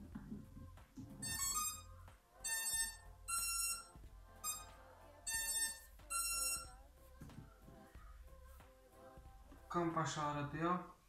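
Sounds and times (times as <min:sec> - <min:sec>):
short electronic beeps: 0:02.5 - 0:04.7, 0:05.3 - 0:06.7.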